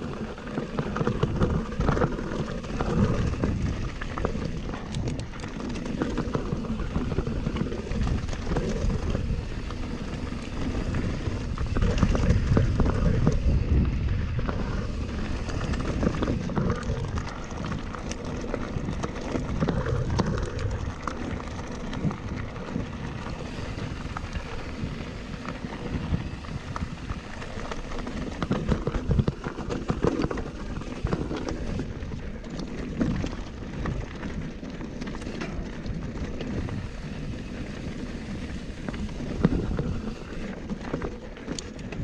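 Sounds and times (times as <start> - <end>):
bike rattling and clicking: 0.0 - 42.0
tyres crunching on gravel: 0.0 - 42.0
wind rumble on microphone: 0.0 - 42.0.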